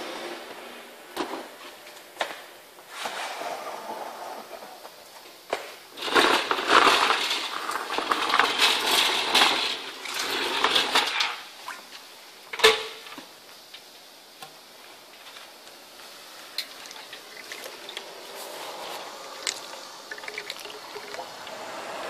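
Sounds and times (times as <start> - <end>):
metal tank clattering and rattling: 6.0 - 11.4.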